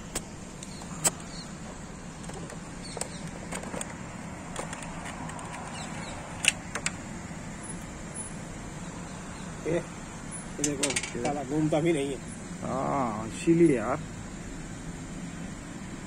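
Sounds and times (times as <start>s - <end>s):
plastic parts clicking and tapping: 2.2s - 7.0s, 10.6s - 11.4s.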